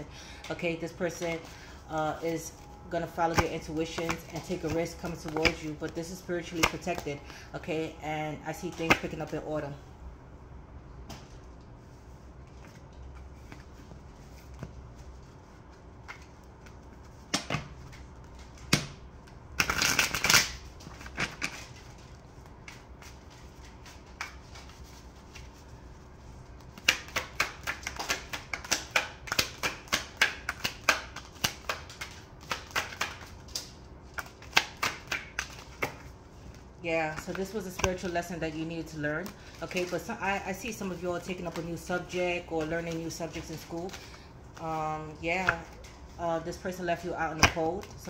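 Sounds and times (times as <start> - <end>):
cards slapping while shuffled: 2.3 - 7.4, 8.6 - 9.4, 12.5 - 48.0
cards tapping: 3.3 - 7.1, 26.6 - 36.1.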